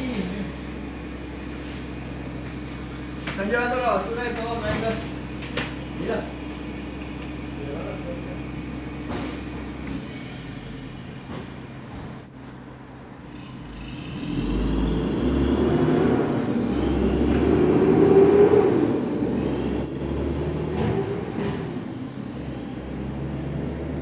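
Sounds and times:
garbage truck engine: 0.0 - 24.0
short high-pitched squeals: 12.2 - 12.7, 19.8 - 20.4.

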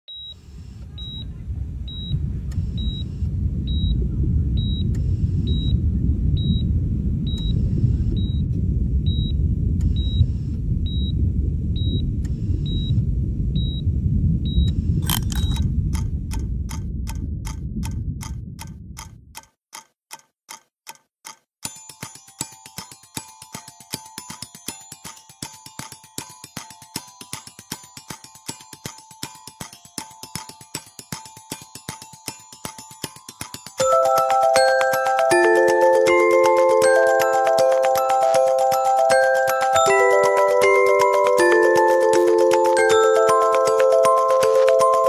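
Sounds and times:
high electronic beep: 0.1 - 1.3, 1.9 - 4.0, 4.6 - 5.8, 6.4 - 6.7, 7.3 - 8.4, 9.1 - 11.2, 11.8 - 12.0, 12.6 - 13.0, 13.6 - 13.8
low rumbling drone: 0.8 - 19.4
clock-like ticking: 14.5 - 45.0.

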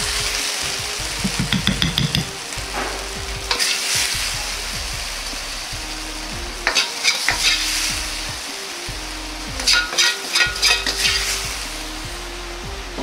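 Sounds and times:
wok sizzling: 0.0 - 13.0
ladle scraping and clinking wok: 1.4 - 4.2, 6.6 - 8.2, 9.6 - 11.8.

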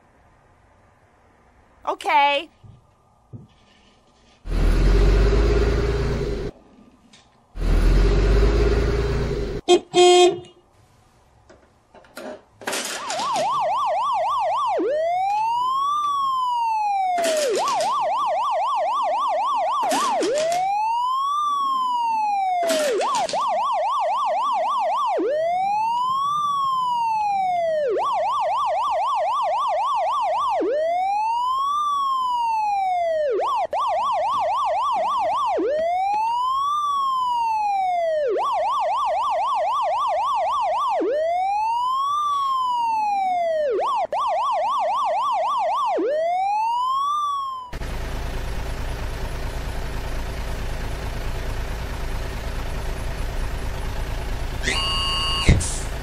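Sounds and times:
electronic police siren: 4.5 - 6.6, 7.6 - 9.6, 12.8 - 48.4, 52.6 - 56.0
sharp plastic clacks: 17.2 - 18.1, 19.8 - 20.7, 22.6 - 23.5.

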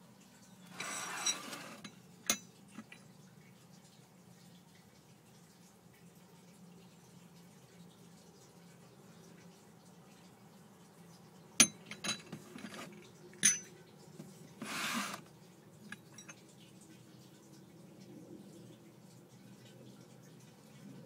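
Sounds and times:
scraping rustle: 0.7 - 1.8, 12.4 - 13.0, 14.6 - 15.3
porcelain cups clinking on saucers: 0.7 - 3.0, 11.6 - 13.8.

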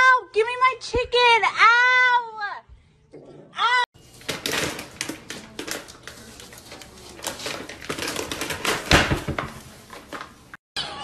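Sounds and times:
plastic bag crinkling: 4.0 - 10.6.

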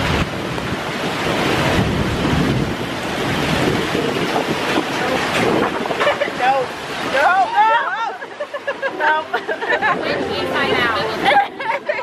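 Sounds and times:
wind buffeting microphone: 0.0 - 7.5
water rushing along channel: 0.0 - 12.0.

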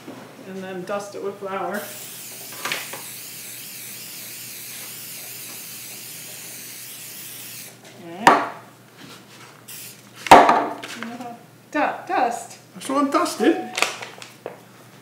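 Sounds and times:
aerosol cooking spray hissing: 1.8 - 7.8, 9.7 - 10.0.

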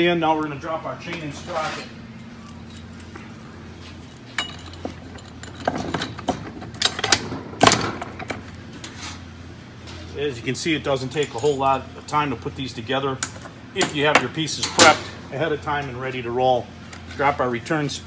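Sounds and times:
steady low hum: 0.0 - 18.0
metal chain clinks and rattles: 11.1 - 11.8.

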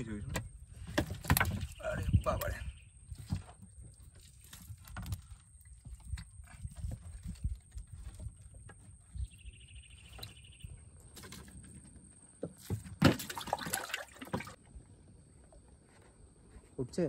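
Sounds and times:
fish splashing in shallow water: 13.0 - 14.6.

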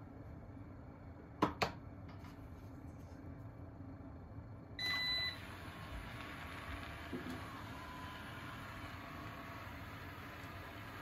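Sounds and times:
vacuum motor humming: 4.8 - 11.0.

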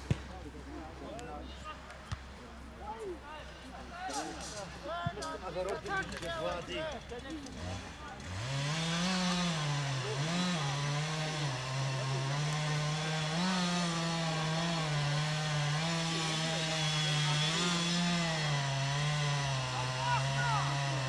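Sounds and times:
small engine revving: 7.4 - 21.0.

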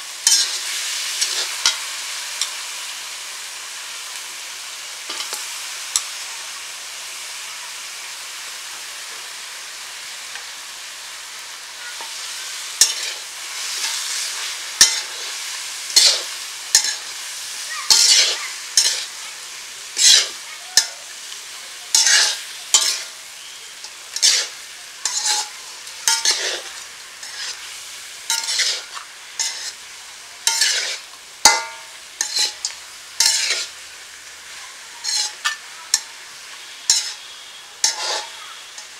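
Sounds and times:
fish sizzling in oil: 0.0 - 38.9
metal spatula scraping pan: 0.2 - 1.8, 11.9 - 19.2, 19.9 - 20.9, 21.9 - 23.2, 23.8 - 33.8, 34.5 - 38.9.

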